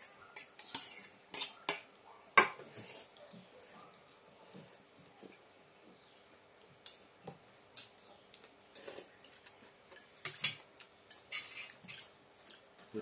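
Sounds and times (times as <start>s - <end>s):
spoons tapping and scraping bowls: 0.0s - 3.2s, 9.8s - 12.6s.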